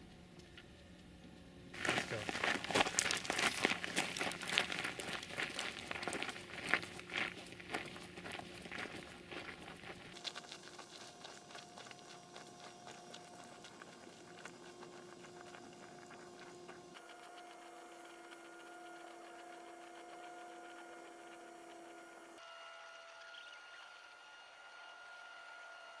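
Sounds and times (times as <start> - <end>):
faint steady hum: 0.0 - 26.0
footsteps crunching on gravel: 1.8 - 21.5.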